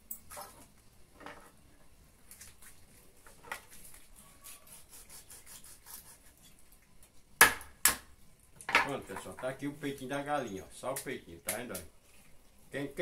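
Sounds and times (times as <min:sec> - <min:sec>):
knife scraping through raw chicken: 0:03.6 - 0:06.6.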